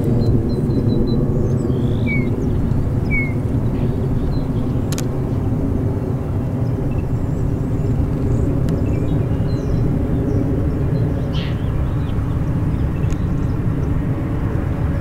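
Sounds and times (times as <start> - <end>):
diesel locomotives rumbling: 0.0 - 15.0
faint bird chirps: 11.3 - 12.1.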